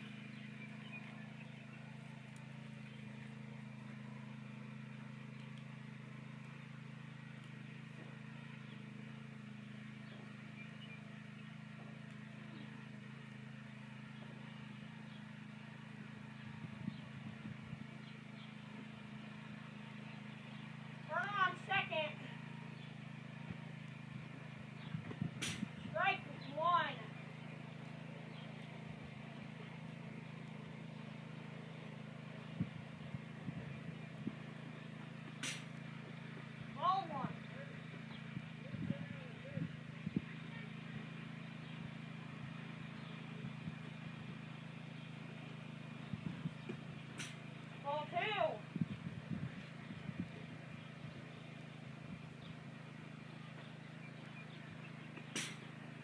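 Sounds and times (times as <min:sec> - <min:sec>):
low hum: 0:00.0 - 0:56.0
baseball bat crack: 0:55.3 - 0:55.7.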